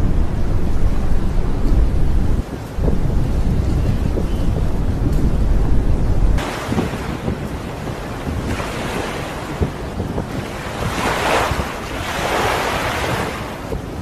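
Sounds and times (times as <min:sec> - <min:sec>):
wind rumbling on microphone: 0:00.0 - 0:14.0
rush of water: 0:06.3 - 0:14.0
sea sloshing and splashing: 0:06.4 - 0:14.0.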